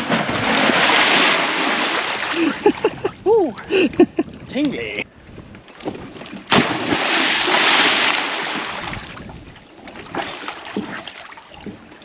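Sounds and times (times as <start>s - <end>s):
person splashing into lake: 0.0s - 3.2s, 6.4s - 9.3s
churning water: 0.0s - 12.0s.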